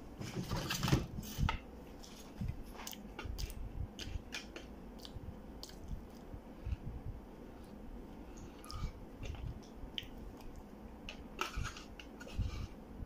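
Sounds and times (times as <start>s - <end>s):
wet mouth and lip smacks: 5.0s - 6.3s.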